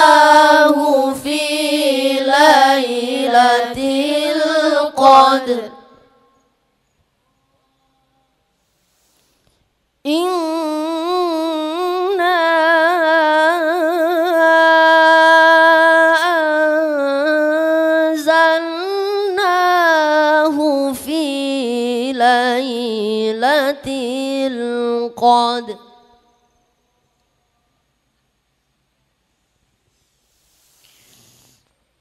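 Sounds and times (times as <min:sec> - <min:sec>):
boy chanting melodically: 0:00.0 - 0:06.2, 0:10.1 - 0:26.2.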